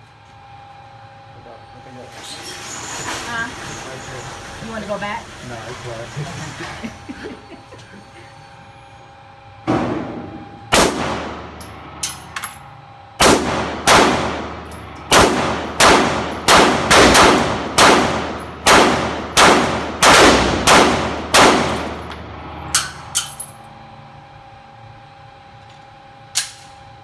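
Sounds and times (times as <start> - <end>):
fainter gunshots: 9.7 - 11.4, 13.2 - 21.9
handgun shots echoing indoors: 10.7 - 12.5, 13.2 - 22.0.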